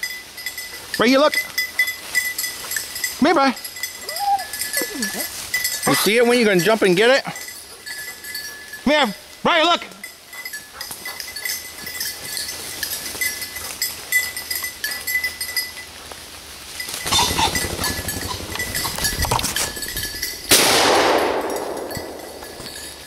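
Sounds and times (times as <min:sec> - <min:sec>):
faint tinkling and clicks: 0:00.0 - 0:20.5, 0:21.5 - 0:23.0
branches and leaves rustling: 0:00.0 - 0:23.0.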